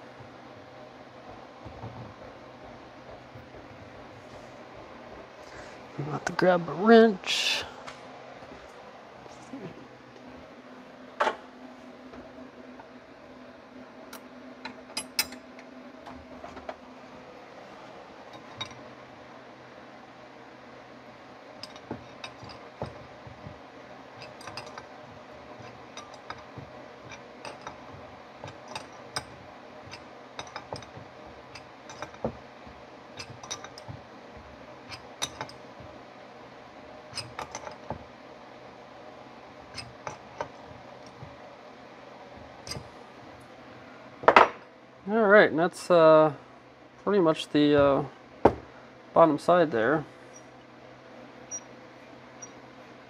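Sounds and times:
metal tools clinking on workbench: 0:24.2 - 0:24.9, 0:25.6 - 0:32.3, 0:33.2 - 0:34.0.

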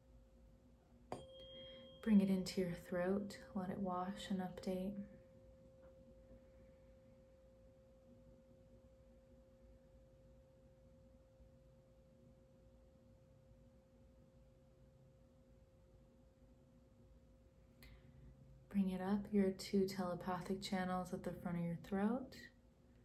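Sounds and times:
low hum: 0:00.0 - 0:12.0
faint steady pure tone: 0:00.0 - 0:23.0.

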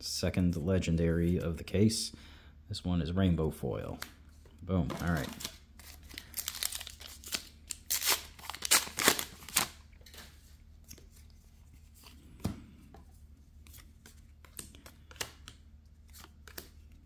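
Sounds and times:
wrapper tearing and crinkling: 0:05.0 - 0:09.8
cards handled with light clicks: 0:13.6 - 0:17.0.

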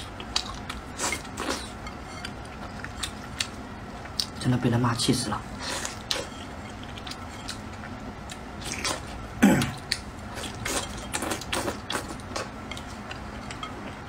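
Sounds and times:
wet chewing and slurping: 0:00.0 - 0:04.4, 0:05.6 - 0:14.0
throat clearing: 0:09.4 - 0:09.8.

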